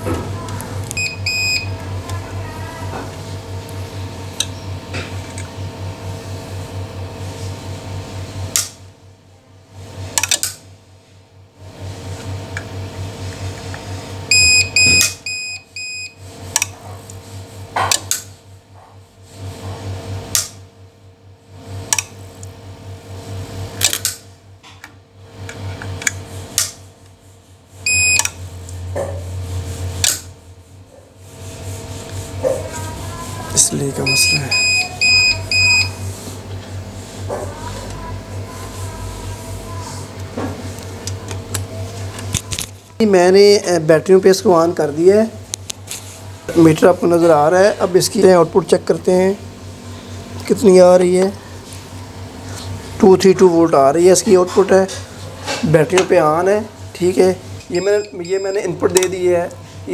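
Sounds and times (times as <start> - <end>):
ups pulsing hum: 0.0 - 59.9
alarm short beeps: 1.0 - 1.7, 14.3 - 16.2, 27.9 - 28.3, 34.0 - 36.0, 57.7 - 58.8.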